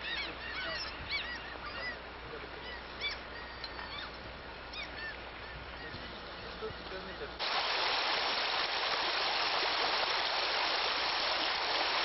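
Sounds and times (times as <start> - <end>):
flock of birds calling: 0.0 - 6.2.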